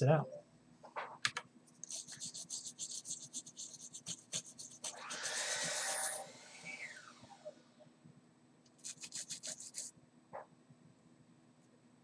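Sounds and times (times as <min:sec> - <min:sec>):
brush scrubbing circuit board: 0:01.8 - 0:06.1, 0:08.8 - 0:09.9.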